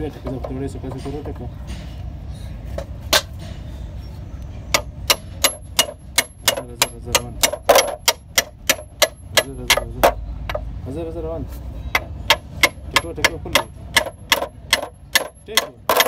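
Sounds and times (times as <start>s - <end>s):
hammer tapping metal: 4.7s - 10.7s, 11.9s - 16.0s.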